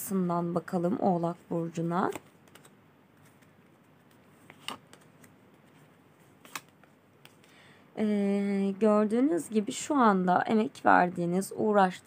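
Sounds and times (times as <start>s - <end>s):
cards being shuffled: 2.0s - 7.6s.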